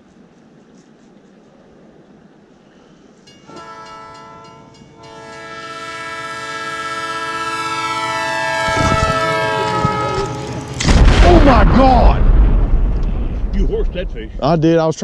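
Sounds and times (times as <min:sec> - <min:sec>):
train horn blasts: 0:03.4 - 0:11.0.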